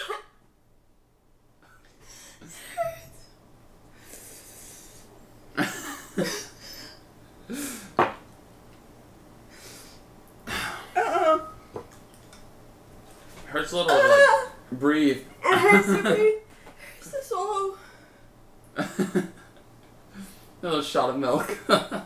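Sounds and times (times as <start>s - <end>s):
person coughing: 0.0s - 0.4s.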